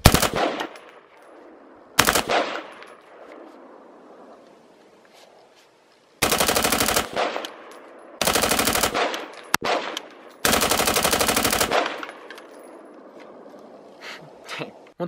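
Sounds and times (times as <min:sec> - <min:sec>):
rapid rifle gunfire: 0:00.0 - 0:00.8, 0:02.0 - 0:02.7, 0:06.2 - 0:07.6, 0:08.2 - 0:12.2
gunshot echo: 0:00.0 - 0:01.1, 0:02.0 - 0:03.7, 0:08.9 - 0:10.3.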